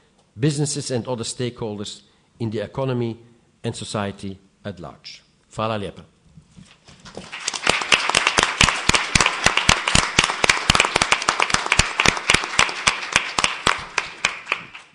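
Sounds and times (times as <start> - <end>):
audience applauding: 7.2 - 14.9.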